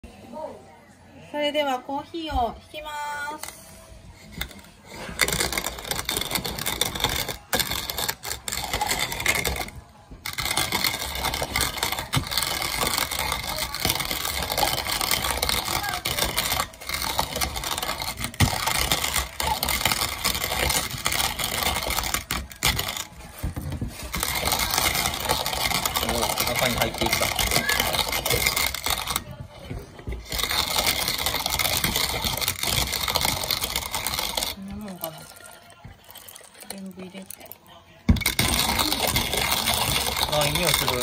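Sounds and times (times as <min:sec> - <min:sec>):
coffee mill grinding beans: 0:02.8 - 0:41.0.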